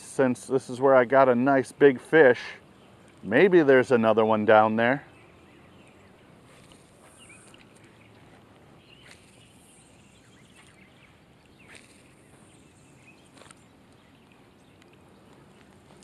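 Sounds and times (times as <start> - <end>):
faint chirps: 4.9 - 16.0.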